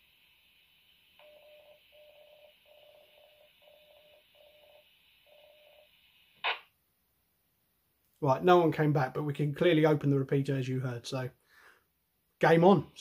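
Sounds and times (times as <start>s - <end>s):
low hiss: 0.0s - 13.0s.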